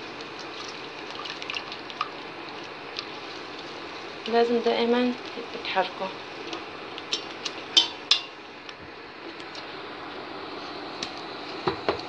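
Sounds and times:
steady hiss: 0:01.8 - 0:12.0.

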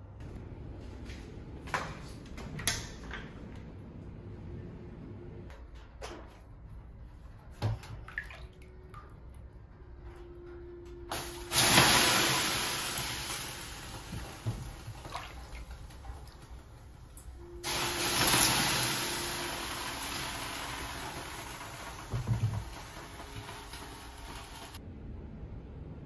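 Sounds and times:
water hissing on hot stones: 0:11.1 - 0:16.0, 0:17.6 - 0:24.8.

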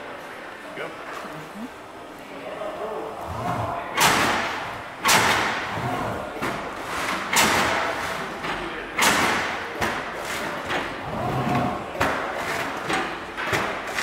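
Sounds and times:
box-making machine working: 0:05.0 - 0:14.0.

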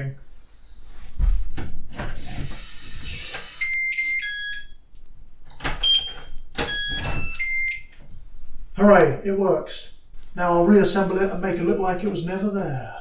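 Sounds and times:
electronic beeps: 0:03.1 - 0:04.8, 0:05.8 - 0:08.0
door handle and lock clicks: 0:05.5 - 0:07.2.

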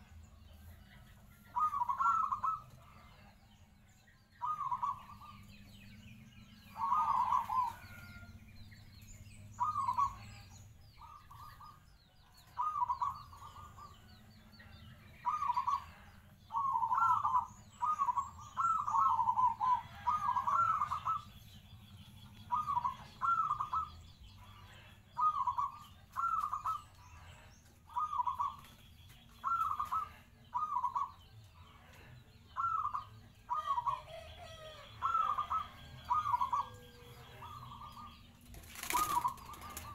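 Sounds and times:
small birds chirping: 0:00.0 - 0:39.9
dove cooing: 0:01.5 - 0:03.4, 0:04.4 - 0:05.6, 0:06.6 - 0:08.3, 0:09.6 - 0:11.8, 0:12.4 - 0:14.1, 0:15.2 - 0:21.4, 0:22.4 - 0:31.2, 0:31.9 - 0:39.9.

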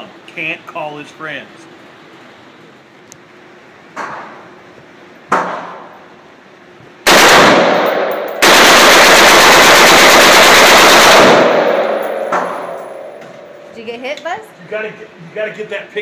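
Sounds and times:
full-automatic gunfire: 0:07.0 - 0:13.0
single gunshot: 0:07.1 - 0:08.2.

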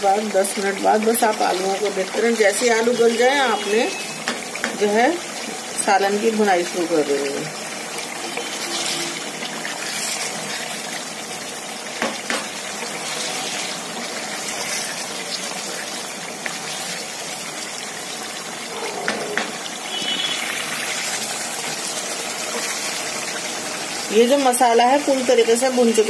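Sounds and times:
curry bubbling and sizzling: 0:00.0 - 0:26.0
spoon knocking against pan: 0:19.0 - 0:19.6.

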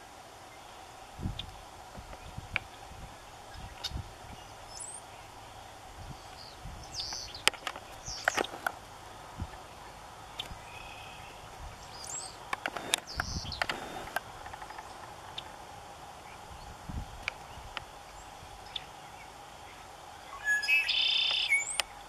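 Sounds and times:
small birds chirping: 0:00.0 - 0:22.0
soft clicks and rustles in grass: 0:01.1 - 0:05.0, 0:06.0 - 0:10.8, 0:11.6 - 0:19.9.

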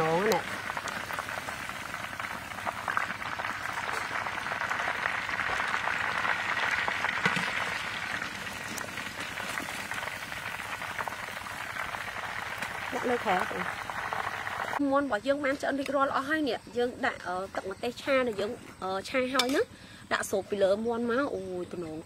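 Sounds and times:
hot oil sizzling in wok: 0:00.0 - 0:14.8.

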